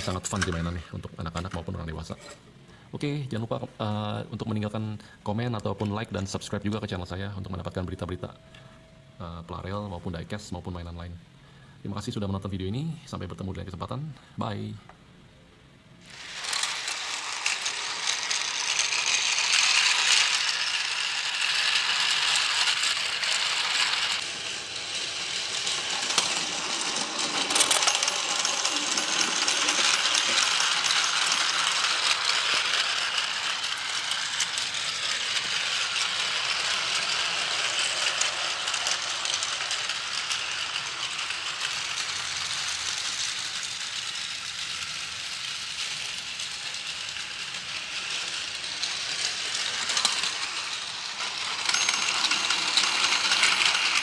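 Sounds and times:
toy train whirring and rattling: 0.0s - 2.4s, 16.0s - 54.0s.

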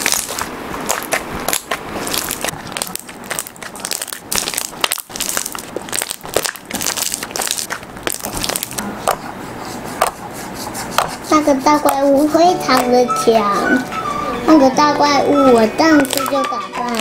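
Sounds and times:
slime squishing and crackling: 0.0s - 9.2s, 15.8s - 17.0s.

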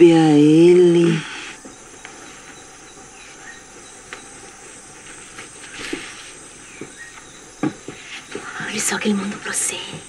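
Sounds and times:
insects and crickets chirring: 0.0s - 10.0s.

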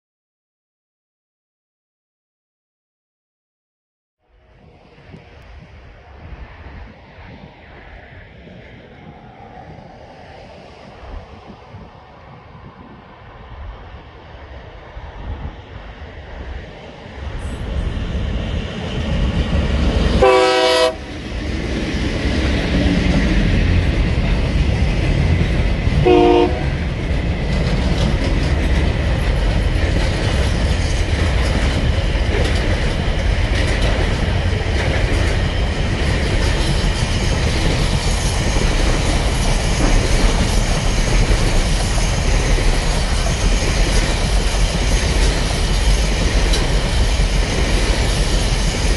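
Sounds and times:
freight train rumbling past: 4.3s - 48.9s
train horn: 20.2s - 21.1s, 26.0s - 26.8s.

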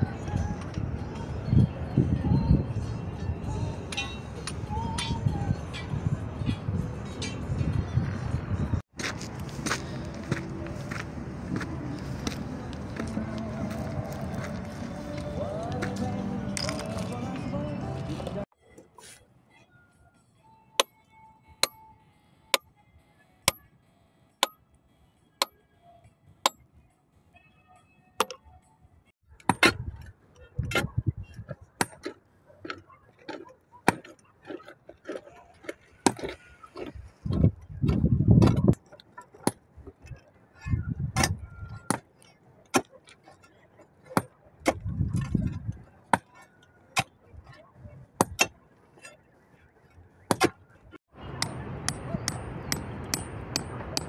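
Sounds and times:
hammers striking rock: 51.4s - 54.0s.

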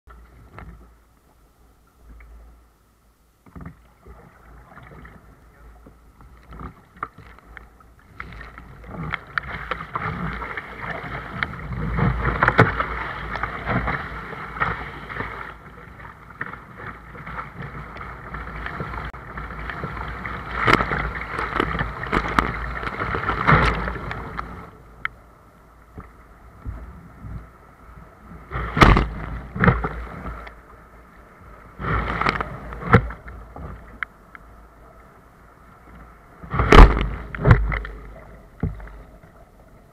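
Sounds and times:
paddle strokes in water: 3.4s - 25.2s, 25.8s - 39.9s
waves breaking: 3.4s - 39.9s
seawater rushing and splashing: 3.9s - 39.9s
sharp loud splashes: 28.6s - 29.4s, 36.5s - 37.8s.

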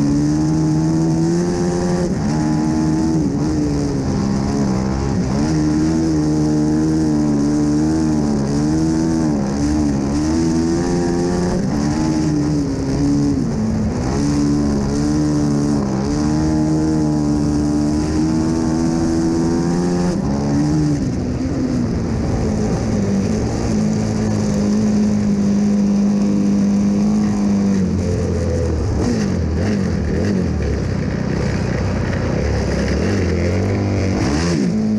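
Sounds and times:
motorcycle engine racing: 0.0s - 34.9s.

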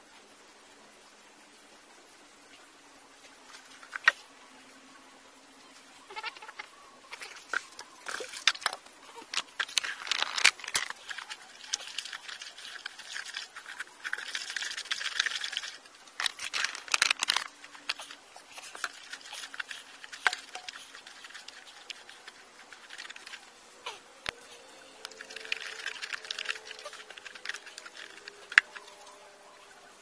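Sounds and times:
gritty mortar scraping: 6.3s - 23.5s, 25.0s - 29.1s.

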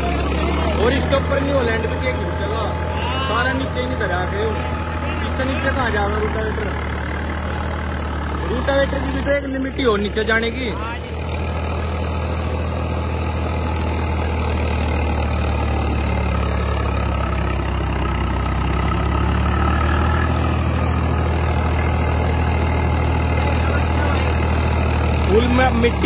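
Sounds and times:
tractor diesel engine under load: 0.0s - 26.0s.

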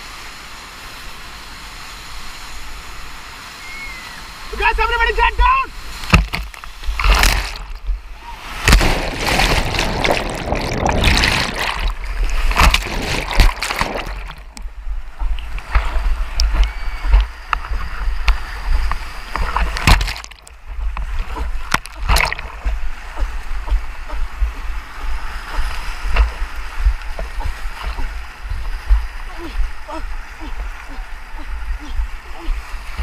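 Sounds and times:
whitewater rushing: 0.0s - 14.8s, 15.4s - 33.0s
water buffeting microphone: 2.0s - 33.0s.

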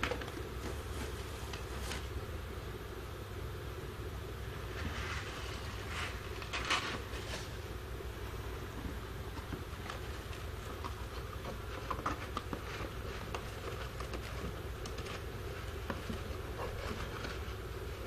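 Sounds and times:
steady low hum: 0.0s - 18.0s
rustling of wood-shaving bedding: 4.6s - 7.7s.

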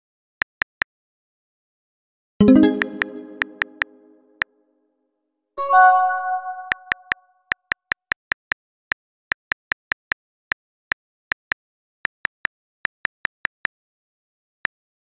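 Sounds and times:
smartphone keyboard typing clicks: 6.6s - 7.2s.

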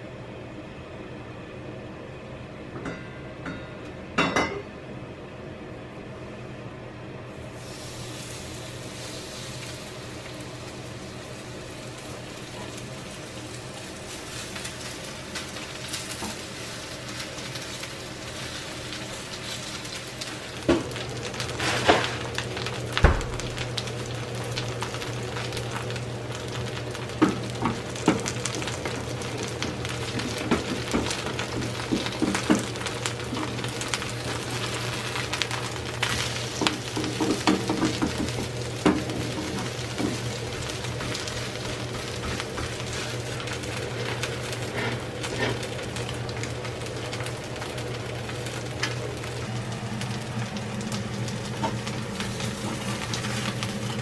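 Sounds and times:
batter sizzling in hot oil: 7.3s - 54.0s
dull thump: 23.0s - 23.4s.

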